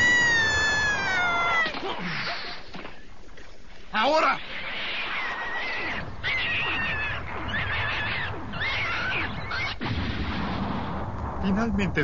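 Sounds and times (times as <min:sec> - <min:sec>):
high warbling monster shrieks: 0:00.0 - 0:02.5, 0:04.4 - 0:09.8
low rumbling noise: 0:05.9 - 0:12.0.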